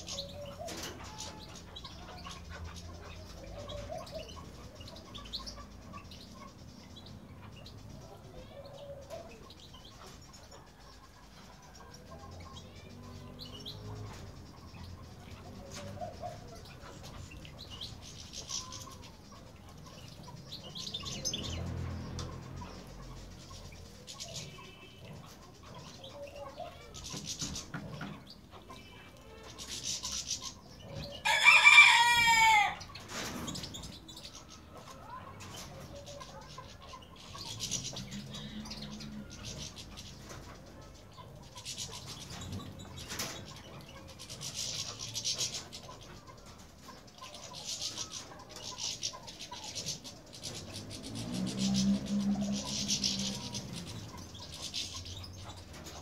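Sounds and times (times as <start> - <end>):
rooster crowing: 31.2 - 32.9.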